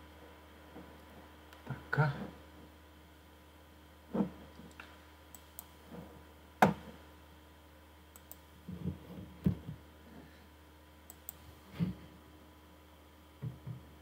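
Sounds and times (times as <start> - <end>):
computer mouse clicking: 8.1 - 8.5, 11.1 - 11.4.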